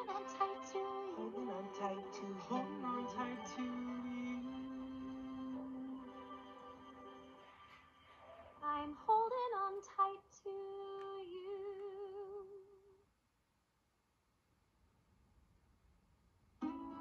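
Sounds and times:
person singing through laptop speakers: 0.0 - 12.7.

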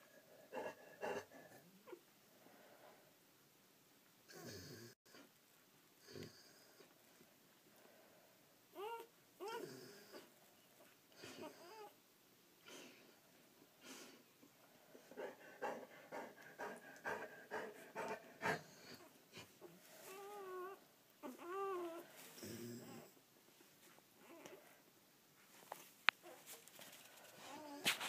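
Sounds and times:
dog whining: 8.8 - 10.2, 11.2 - 12.0, 20.0 - 23.2, 24.2 - 24.8.

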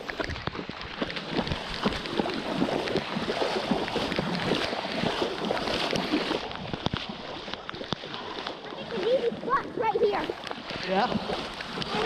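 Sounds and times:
feet splashing through water: 0.0 - 12.0
sharp taps and splashes: 0.0 - 12.0.

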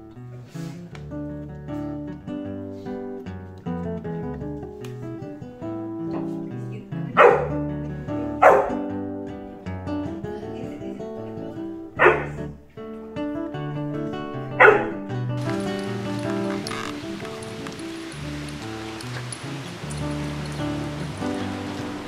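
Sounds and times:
background music: 0.3 - 22.0
puppy barking: 7.2 - 7.6, 8.4 - 8.9, 12.0 - 12.5, 14.6 - 15.0.

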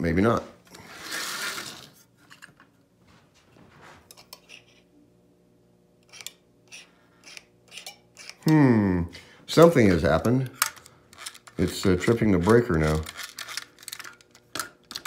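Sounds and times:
faint steady hum: 0.0 - 15.0
toy train wheels clattering on track: 10.6 - 15.0.

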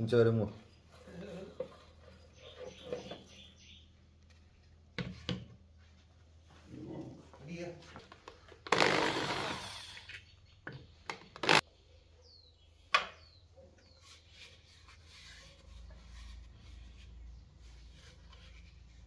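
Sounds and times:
power drill running: 8.8 - 9.8.

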